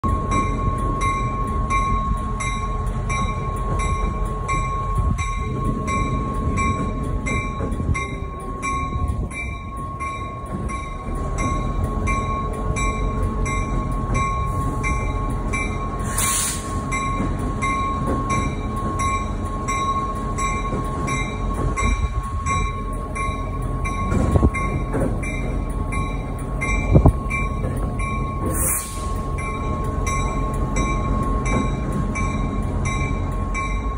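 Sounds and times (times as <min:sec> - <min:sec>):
diesel locomotive engine rumbling: 0:00.0 - 0:33.9
locomotive bell ringing: 0:00.0 - 0:33.9
short hisses: 0:16.0 - 0:16.7.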